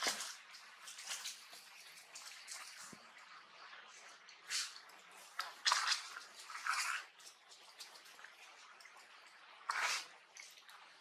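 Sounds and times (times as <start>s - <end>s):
faint hiss: 0.0s - 6.6s.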